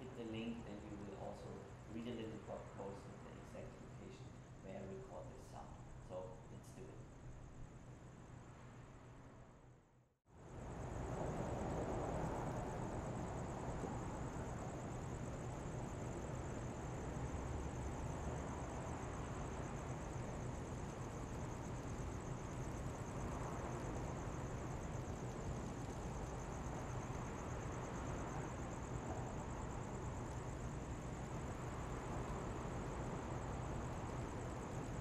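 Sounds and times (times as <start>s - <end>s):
distant traffic hum: 10.4s - 35.0s.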